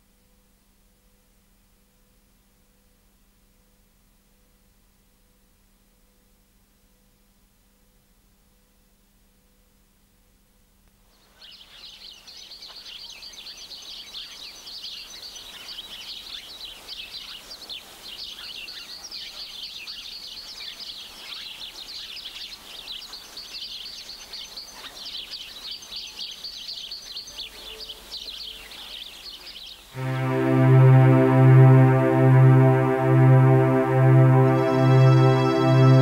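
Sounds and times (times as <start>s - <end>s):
birds and insects chirping: 11.1s - 30.5s.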